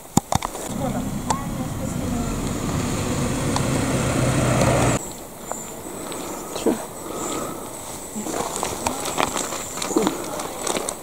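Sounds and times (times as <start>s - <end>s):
outdoor ambience: 0.0s - 11.0s
vehicle engine humming: 0.4s - 5.0s.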